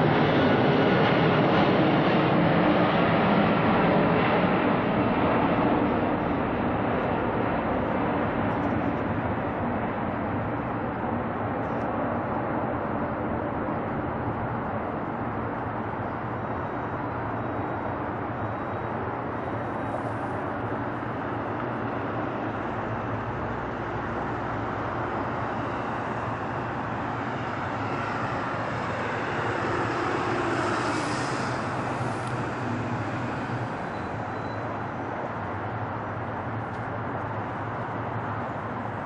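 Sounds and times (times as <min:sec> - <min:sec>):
jet engines roaring: 0:00.0 - 0:39.0.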